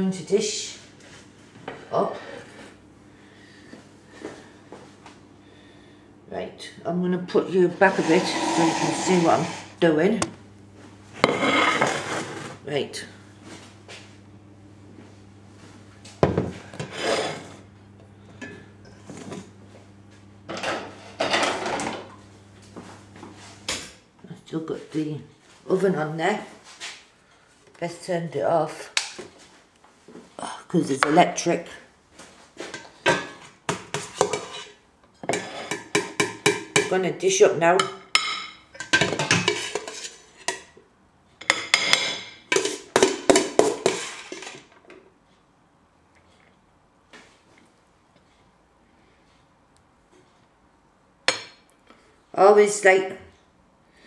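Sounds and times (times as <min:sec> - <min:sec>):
steady low hum: 0:00.0 - 0:27.6
pans and dishes clattering: 0:20.5 - 0:22.0, 0:32.7 - 0:36.9, 0:38.2 - 0:40.7, 0:41.4 - 0:44.6.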